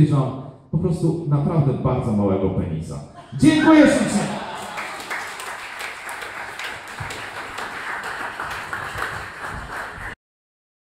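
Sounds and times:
audience applauding: 4.0 - 10.2.

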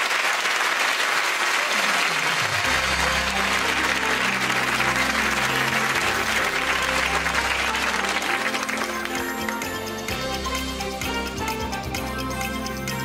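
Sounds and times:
audience applauding: 0.0 - 13.0
theme music with bass line: 2.6 - 13.0.

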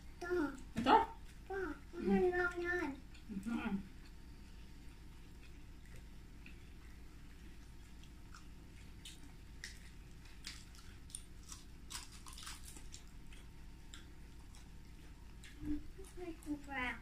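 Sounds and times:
faint low hum: 0.0 - 17.0
people chewing and crunching food: 0.0 - 17.0.

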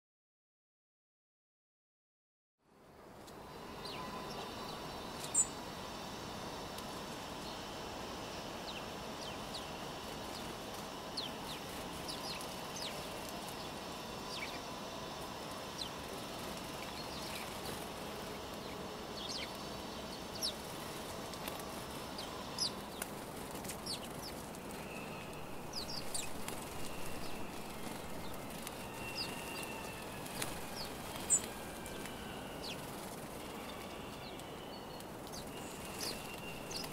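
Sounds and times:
city background noise: 2.6 - 36.9
sparrows chirping: 3.5 - 6.1, 7.3 - 36.9
wing flutters: 9.1 - 34.1, 35.0 - 36.9.

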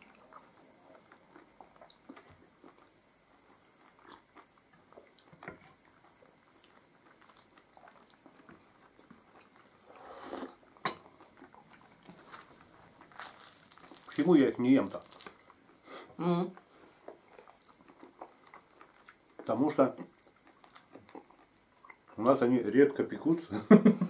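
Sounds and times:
faint chewing: 0.0 - 22.5
sip of hot tea: 9.9 - 10.6.

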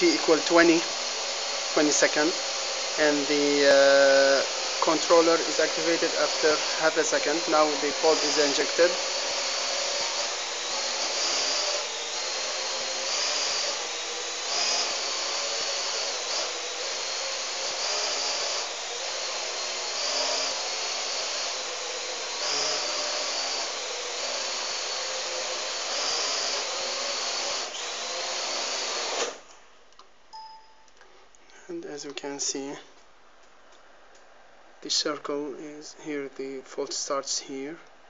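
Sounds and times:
drone motors whining: 0.0 - 29.4.

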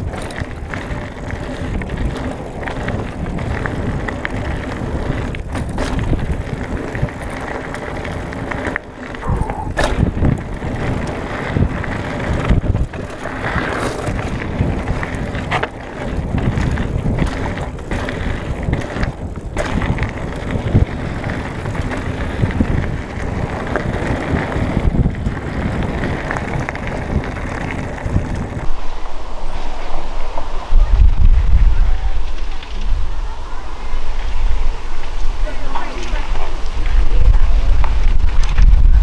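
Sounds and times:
tyres crunching on gravel: 0.0 - 28.9
bike rattling: 0.0 - 39.0.

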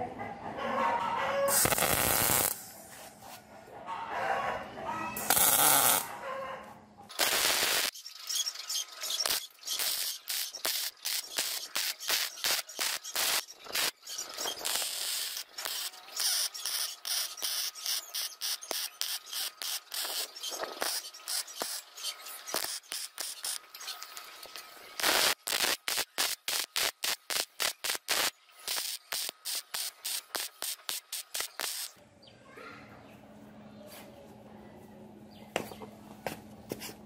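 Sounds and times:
welding arc crackling and hissing: 1.5 - 2.8, 5.2 - 6.1, 7.1 - 32.0.

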